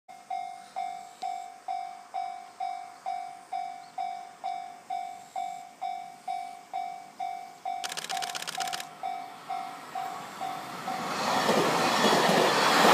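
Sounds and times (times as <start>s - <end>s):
level crossing warning bell: 0.1s - 8.0s, 8.9s - 11.1s.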